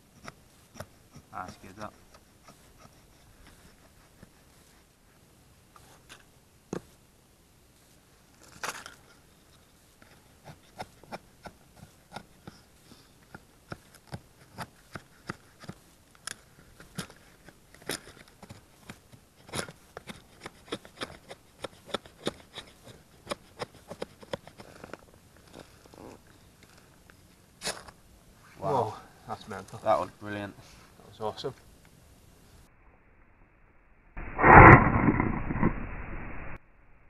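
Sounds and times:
knife shaving wood: 13.2 - 26.0.

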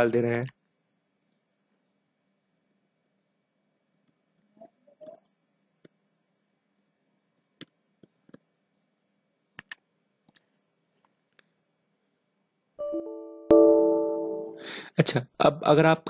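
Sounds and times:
keyboard and mouse clicks: 9.6 - 11.2
tone: 12.8 - 14.7.

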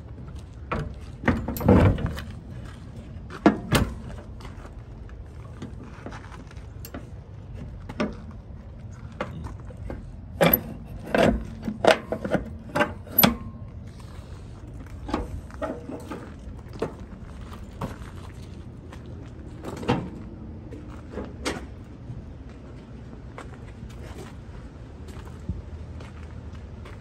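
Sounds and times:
steady low hum: 0.0 - 27.0
footsteps on gravel: 4.0 - 10.3, 16.2 - 21.8.

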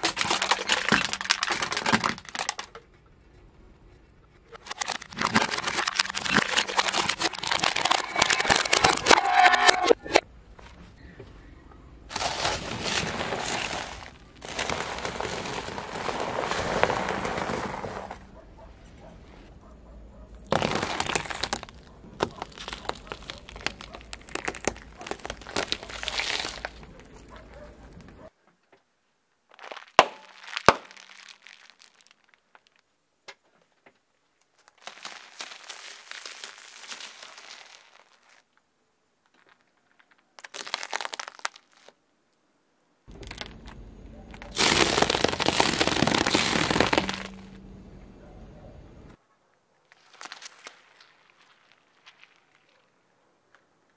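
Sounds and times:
car tyre crushing objects: 0.0 - 2.8, 4.6 - 10.3, 12.1 - 18.3, 20.4 - 27.4, 29.5 - 32.6, 40.4 - 41.9, 43.1 - 47.6
sharp cracks: 29.5 - 32.8, 43.1 - 47.6.

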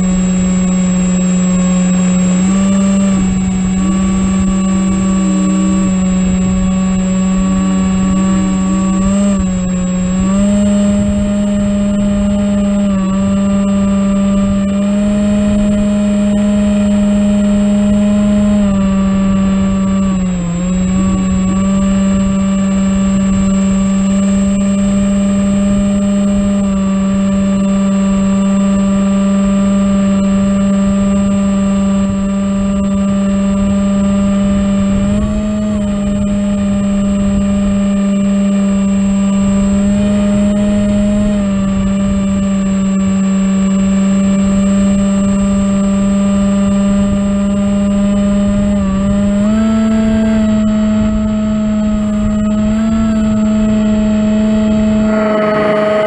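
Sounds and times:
low wind rumble: 0.0 - 43.6, 44.7 - 56.0
electric motor and propeller drone: 0.0 - 56.0.

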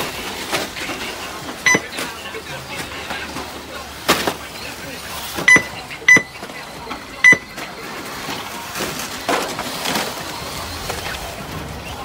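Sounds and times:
race track background noise: 0.0 - 12.0
short high electronic beeps: 1.7 - 1.9, 5.5 - 6.4, 7.2 - 7.5.

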